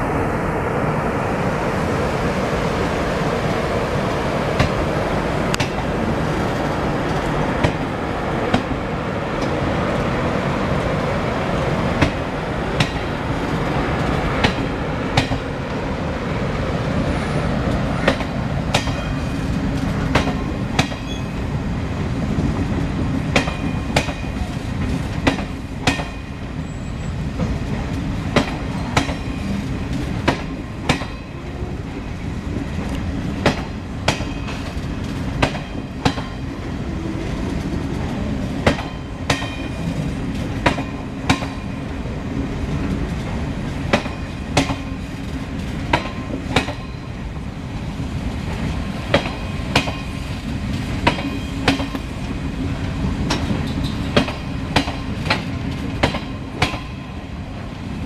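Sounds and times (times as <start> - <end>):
train coaches rumbling past: 0.0 - 58.0
wheels clacking over rail joints: 17.0 - 21.5, 22.5 - 47.2, 48.4 - 58.0.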